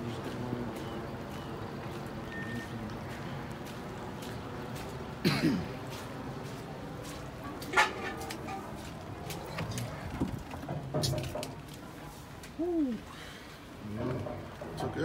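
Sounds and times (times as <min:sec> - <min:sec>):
footsteps on wet gravel: 0:00.0 - 0:10.1
outdoor background hiss: 0:00.0 - 0:15.0.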